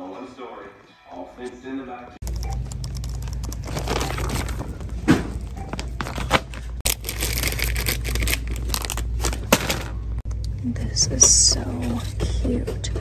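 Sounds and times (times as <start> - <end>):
plastic packaging crinkling: 2.3 - 5.0, 5.8 - 10.1
steady low hum: 7.9 - 13.0.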